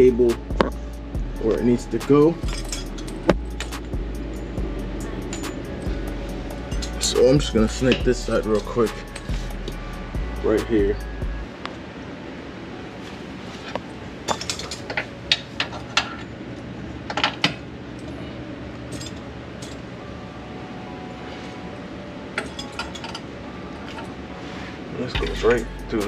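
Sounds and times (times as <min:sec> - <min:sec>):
metallic cable clicks and clinks: 0:01.5 - 0:04.5, 0:06.6 - 0:09.8, 0:22.4 - 0:23.2.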